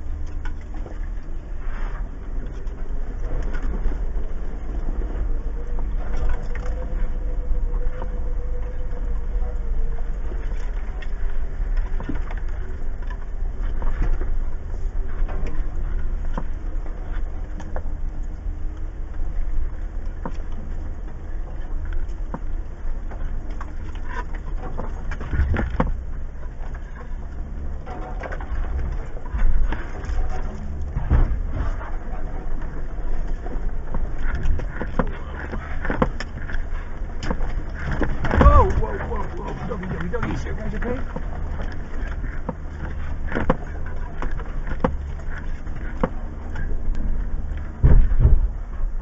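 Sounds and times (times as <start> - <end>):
engine droning at a crawl: 0.0 - 49.0
sharp knocks and clicks: 33.9 - 46.7.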